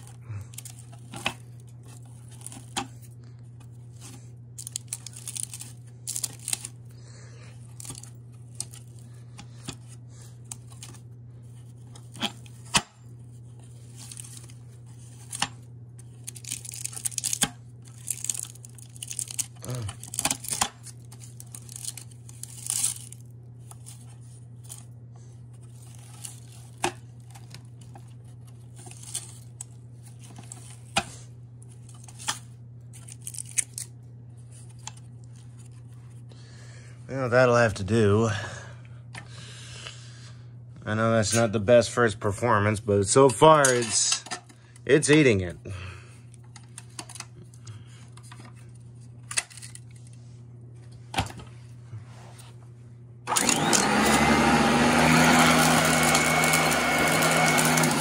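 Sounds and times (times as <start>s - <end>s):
vacuum cleaner humming: 53.3s - 58.0s.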